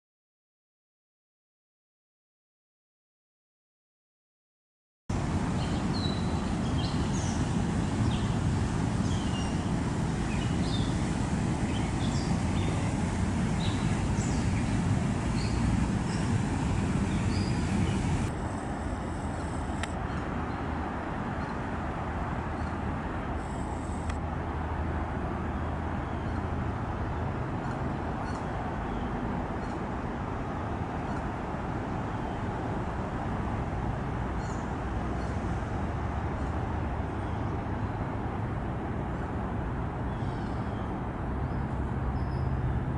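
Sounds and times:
low background rumble: 0:05.1 - 0:20.6
songbirds chirping: 0:05.4 - 0:21.7.

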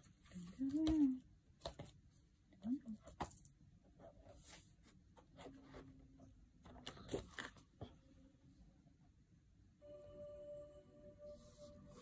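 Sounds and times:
calendar pages flipping: 0:06.6 - 0:07.9.

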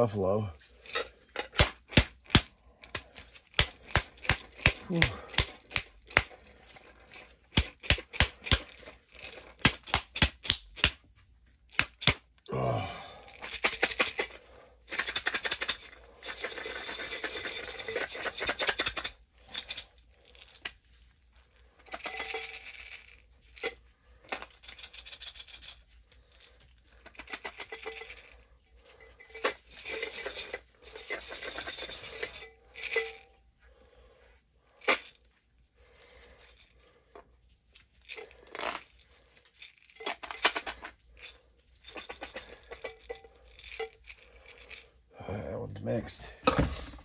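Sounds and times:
grain rattling in glass jar: 0:13.3 - 0:33.4, 0:37.9 - 0:45.0.

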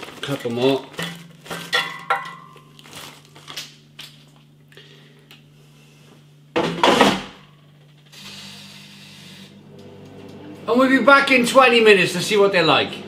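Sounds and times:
fries clinking into metal basket: 0:00.0 - 0:03.6
air fryer fan hissing: 0:08.1 - 0:13.0.

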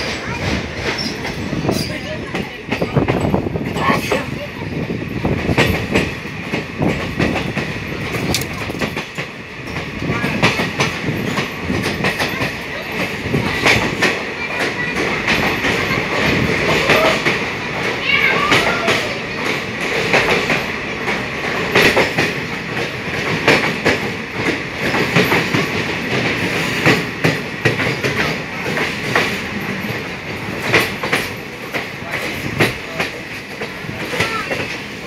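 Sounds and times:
steady train rumble: 0:00.0 - 0:35.0
train wheels clattering over rail joints: 0:00.0 - 0:35.0.

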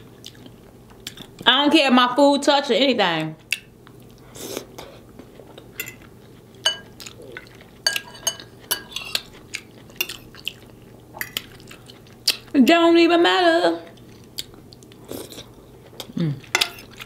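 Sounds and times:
fork clinking on plate: 0:05.8 - 0:06.0, 0:06.6 - 0:06.9, 0:07.8 - 0:09.3.

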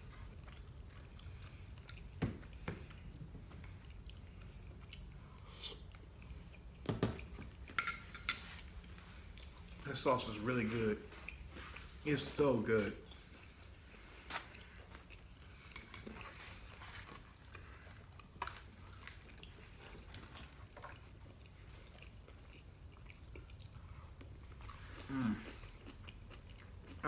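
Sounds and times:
chewing and biting noodles: 0:13.2 - 0:27.0.

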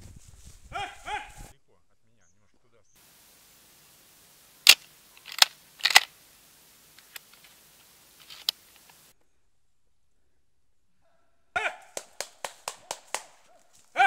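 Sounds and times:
shotgun metallic clack: 0:04.7 - 0:06.1
shells clicking into magazine: 0:04.7 - 0:06.2, 0:06.9 - 0:07.6, 0:08.2 - 0:09.0.

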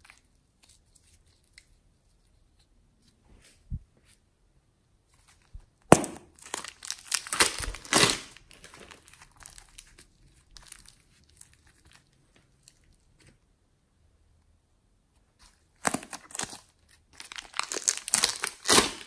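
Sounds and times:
plastic bag crinkling: 0:05.3 - 0:13.0, 0:15.8 - 0:19.0.

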